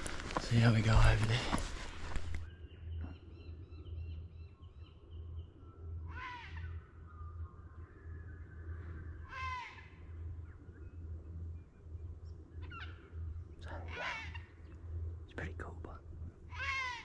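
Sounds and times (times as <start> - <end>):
small birds chirping: 0.0 - 17.0
crow calling: 6.0 - 6.9, 9.2 - 10.3, 12.6 - 13.1, 13.7 - 14.7, 16.4 - 17.0.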